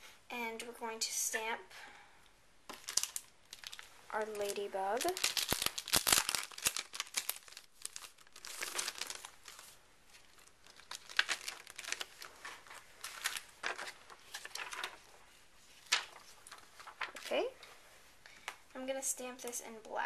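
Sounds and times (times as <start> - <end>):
plastic sheet crinkling: 2.7 - 17.8.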